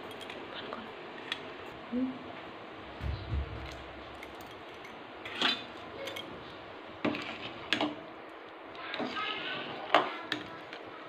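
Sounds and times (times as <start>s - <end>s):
soft low bump: 3.0s - 4.2s.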